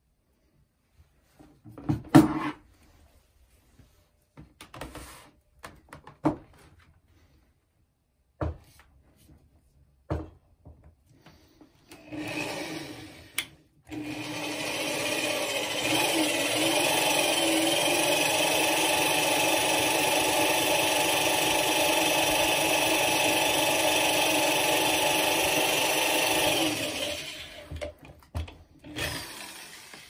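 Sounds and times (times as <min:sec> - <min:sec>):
drill running on metal: 0:12.0 - 0:27.7, 0:28.9 - 0:30.0.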